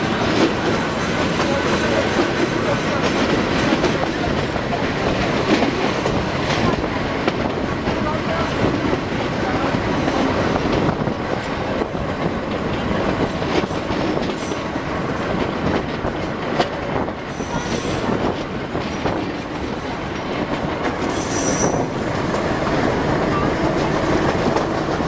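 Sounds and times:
train wheels rumbling on rails: 0.0s - 25.0s
wheel squeal: 21.2s - 21.8s.

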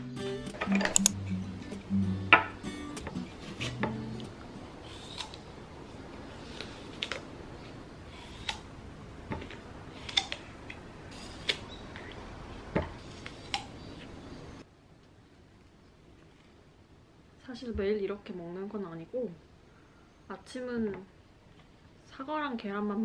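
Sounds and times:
apple crunching and chewing: 4.9s - 5.4s, 9.4s - 12.1s.

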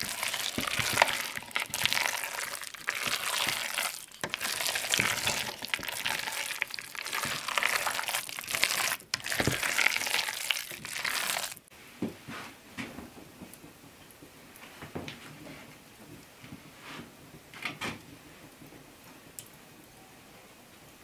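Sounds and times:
spoon scraping sticky mixture in pot: 0.0s - 11.6s.

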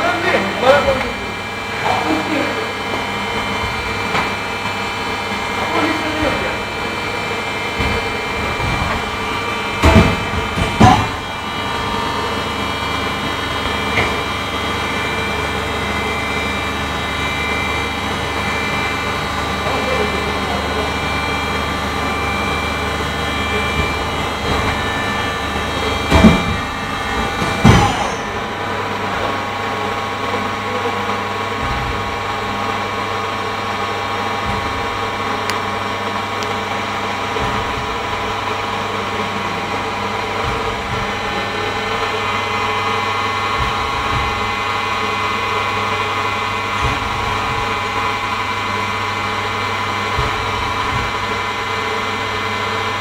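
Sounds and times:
machinery humming: 0.0s - 53.0s
loud knocks: 7.7s - 11.4s, 23.4s - 29.4s, 40.2s - 45.1s.

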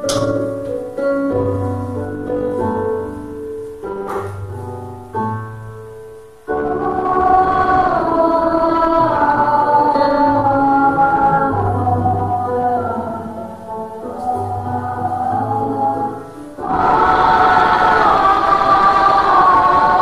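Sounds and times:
choir singing: 6.5s - 20.0s.

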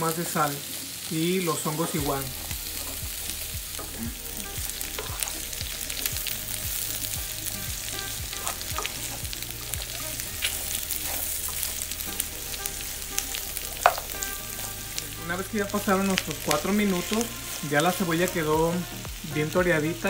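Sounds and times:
meat and onion sizzling in oil: 0.0s - 20.0s
spatula scraping and tapping pan: 1.8s - 14.8s.

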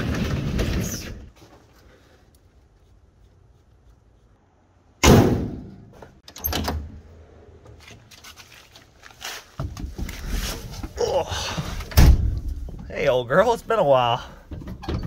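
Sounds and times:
car hood slamming shut: 5.0s - 5.7s.

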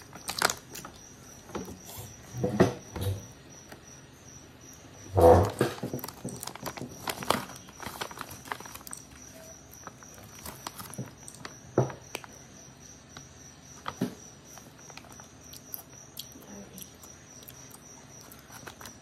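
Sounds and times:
potato chips crunching: 0.0s - 1.7s, 5.4s - 12.4s, 13.8s - 19.0s
crinkly chip bag handled: 0.0s - 1.8s, 5.4s - 12.3s, 18.1s - 19.0s.

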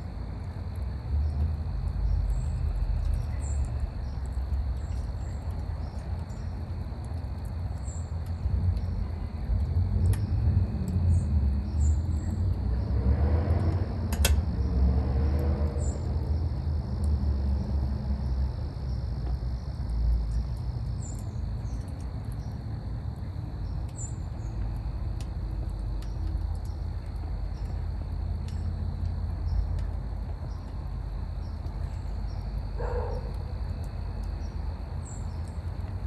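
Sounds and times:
crickets droning: 0.0s - 36.0s
low rumble: 8.3s - 21.8s.

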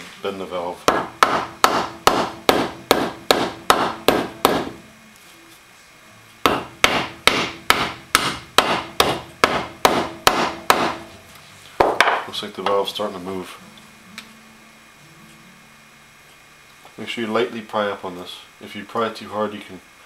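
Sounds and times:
rubber mallet tapping metal: 0.9s - 4.8s, 6.5s - 11.1s.

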